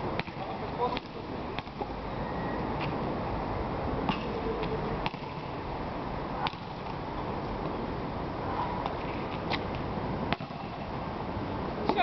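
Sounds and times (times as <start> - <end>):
basketball bouncing on asphalt: 0.1 - 1.9, 4.0 - 5.6, 6.4 - 7.0, 10.3 - 10.9.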